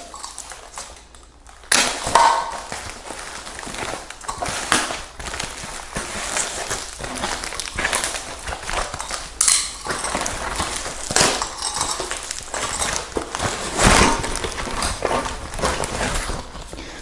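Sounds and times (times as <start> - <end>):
packing foam and plastic crinkling: 0.0 - 17.0.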